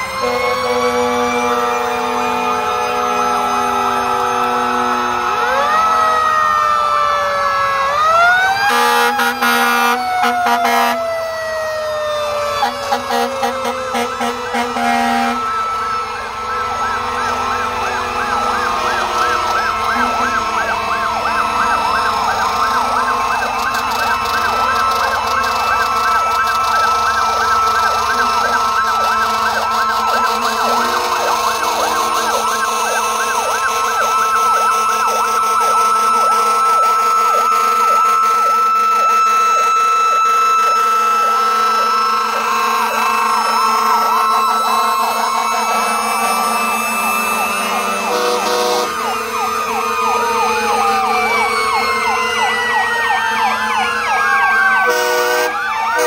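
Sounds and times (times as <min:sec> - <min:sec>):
fire engine horn: 0:00.0 - 0:56.0
fire engine siren wail: 0:00.0 - 0:56.0
siren yelp: 0:00.0 - 0:56.0
steady high tone: 0:41.3 - 0:56.0.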